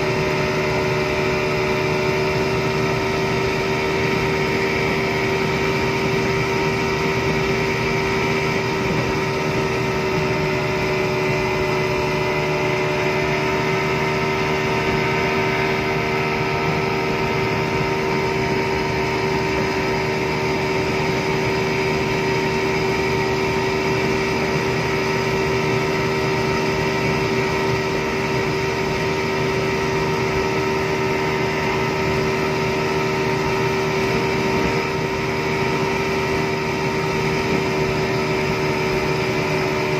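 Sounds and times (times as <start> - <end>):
outboard motor running: 0.0 - 39.9.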